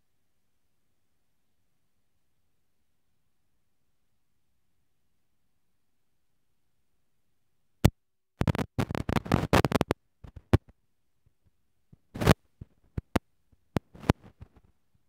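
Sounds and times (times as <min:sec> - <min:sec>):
taps and scrapes on card: 0:08.4 - 0:10.7, 0:12.0 - 0:13.2.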